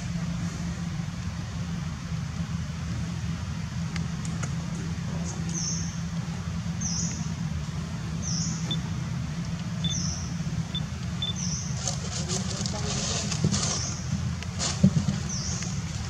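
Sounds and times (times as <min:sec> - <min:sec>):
steady low hum: 0:00.0 - 0:16.0
short high bird chirps: 0:09.8 - 0:11.7.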